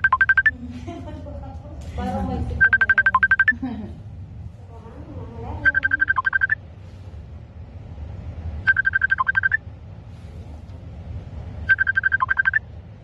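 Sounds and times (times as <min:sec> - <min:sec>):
electronic ringing beeps: 0:00.0 - 0:00.5, 0:02.6 - 0:03.6, 0:05.6 - 0:06.6, 0:08.6 - 0:09.6, 0:11.6 - 0:12.7
steady low hum: 0:00.0 - 0:13.0.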